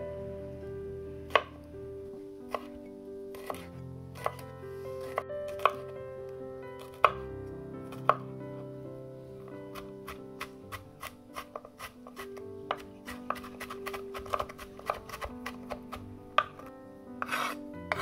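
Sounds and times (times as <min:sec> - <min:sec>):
knife chopping on wooden board: 0:02.5 - 0:02.8, 0:03.4 - 0:04.4, 0:05.0 - 0:05.9, 0:06.8 - 0:07.2, 0:08.0 - 0:08.2, 0:09.7 - 0:18.0.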